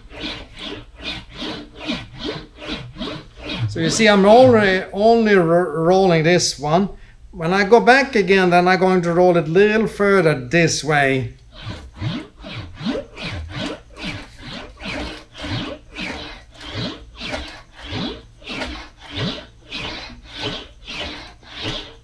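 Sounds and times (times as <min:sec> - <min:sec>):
metal wheel rolling rumble: 0:02.2 - 0:05.3.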